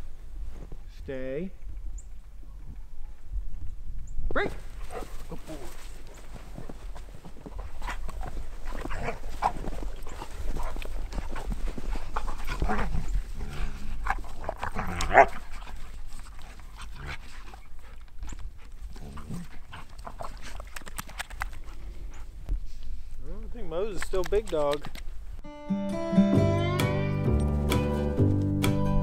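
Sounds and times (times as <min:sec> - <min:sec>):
dog panting: 0:07.4 - 0:14.6.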